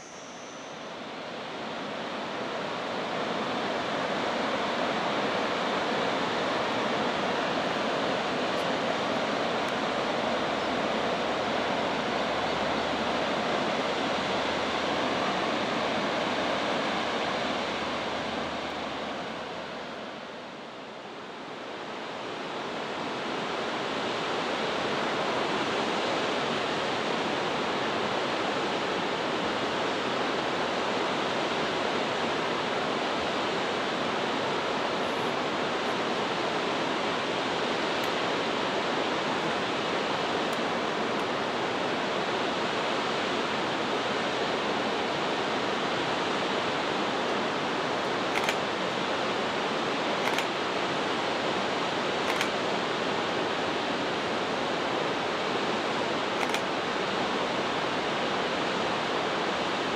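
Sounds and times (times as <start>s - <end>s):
waterfall rushing: 0.9s - 20.3s.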